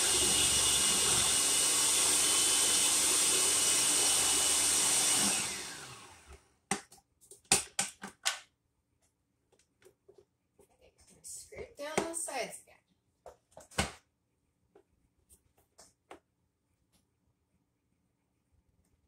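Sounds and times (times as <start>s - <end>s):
food processor motor running: 0.0s - 6.4s.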